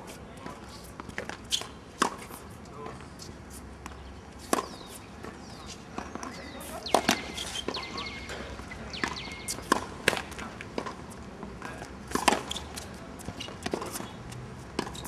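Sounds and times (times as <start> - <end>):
shoes squeaking on court: 0.0 - 15.0
tennis balls struck by rackets: 0.0 - 15.0
balls bouncing on hard court: 3.8 - 15.0.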